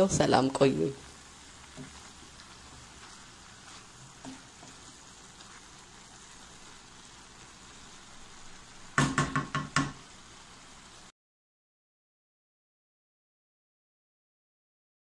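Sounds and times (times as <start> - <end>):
faint sizzling in a wok: 0.0 - 11.1
soft stirring of vegetables: 0.0 - 11.1
wooden spatula knocking on wok: 1.7 - 2.0, 8.9 - 10.0.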